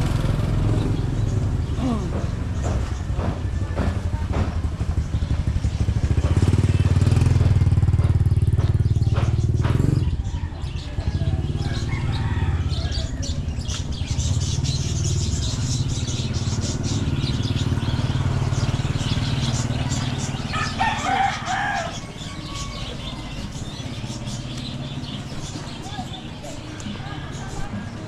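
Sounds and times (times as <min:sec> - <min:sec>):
small motorcycle engine running: 0:00.0 - 0:25.9.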